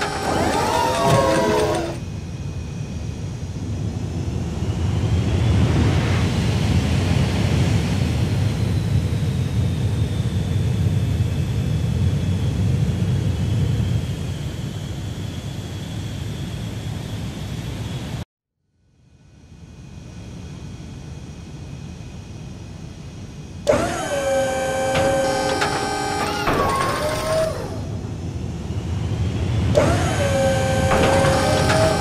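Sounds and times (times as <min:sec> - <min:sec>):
jet engine rumble: 0:00.0 - 0:18.2, 0:24.9 - 0:32.0
high jet whine: 0:20.0 - 0:32.0.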